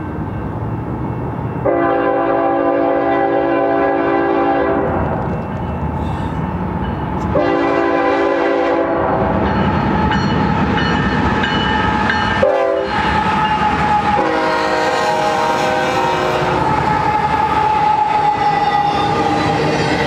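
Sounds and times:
diesel locomotive engines running: 0:00.0 - 0:20.0
train wheels rumbling on rails: 0:00.0 - 0:20.0
train air horn blasts: 0:01.6 - 0:05.2, 0:07.3 - 0:09.4, 0:12.4 - 0:19.4.

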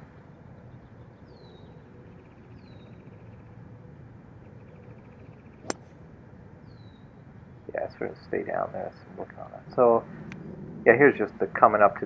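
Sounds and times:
faint outdoor background: 0:00.0 - 0:12.0
golf club striking ball: 0:05.6 - 0:05.9.

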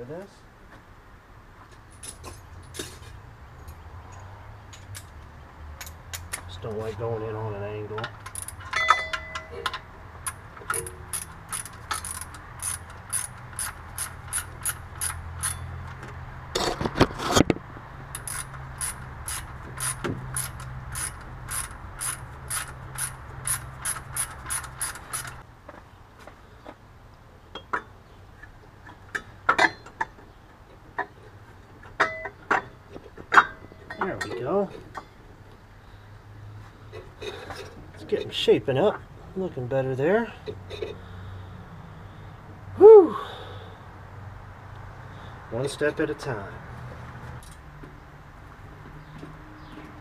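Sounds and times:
rattle: 0:08.2 - 0:15.7, 0:18.1 - 0:25.4
socket ratchet clicking: 0:10.3 - 0:15.6, 0:18.2 - 0:25.4.

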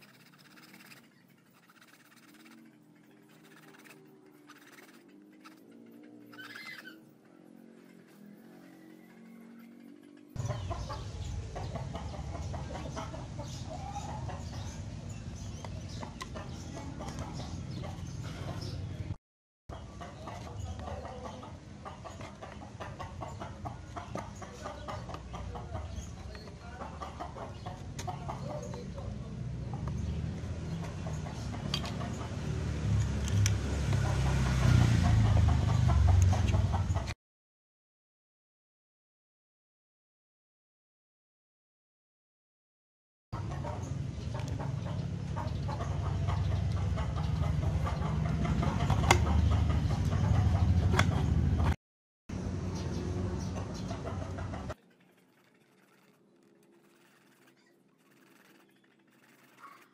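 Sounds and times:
chickens clucking: 0:00.0 - 0:19.0, 0:19.7 - 0:32.6, 0:33.8 - 0:37.2, 0:43.4 - 0:51.8, 0:52.8 - 0:54.8, 0:59.4 - 0:59.9.

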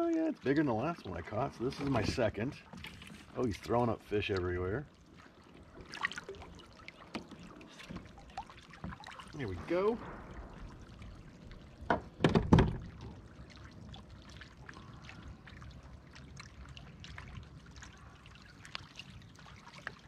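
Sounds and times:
soft dripping: 0:00.0 - 0:20.0
water splashing and trickling: 0:00.0 - 0:20.0
loud sharp splashes and knocks: 0:07.1 - 0:13.7.

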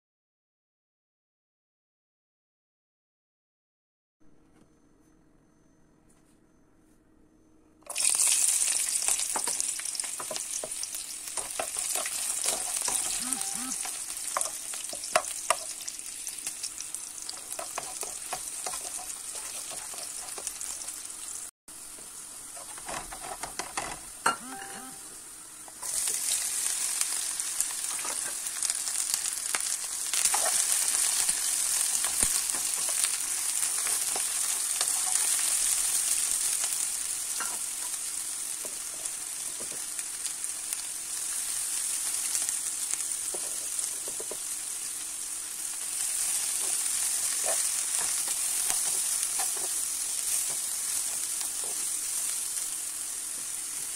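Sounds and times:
onions sizzling in a frying pan: 0:07.9 - 0:53.9
spatula scraping a pan: 0:22.6 - 0:24.0, 0:46.2 - 0:51.9.

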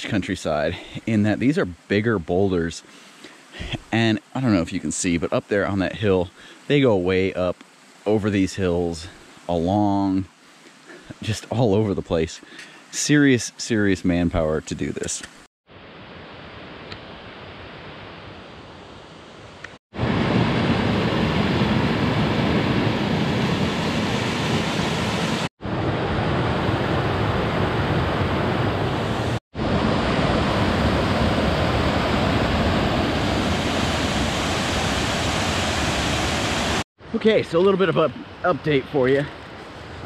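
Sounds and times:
water rushing over boulders: 0:29.0 - 0:39.3.

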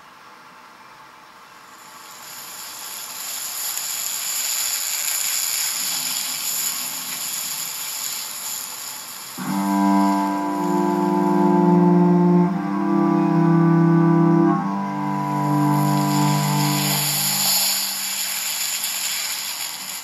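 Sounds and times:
high even hiss: 0:01.4 - 0:20.0
sustained low chord: 0:09.4 - 0:18.0.

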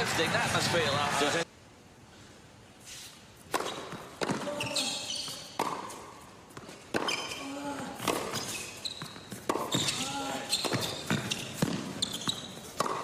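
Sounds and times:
sneakers squeaking on court: 0:02.9 - 0:13.0
racket striking tennis ball: 0:03.4 - 0:13.0.

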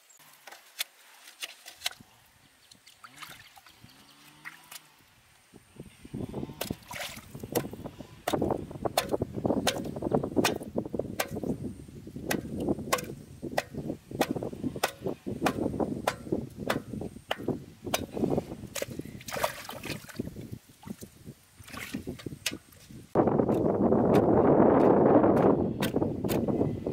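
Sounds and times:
water sloshing and splashing: 0:00.4 - 0:02.0, 0:02.7 - 0:05.0, 0:06.6 - 0:07.7, 0:18.7 - 0:23.0
sharp slaps on water: 0:09.0 - 0:11.5, 0:12.2 - 0:18.1.

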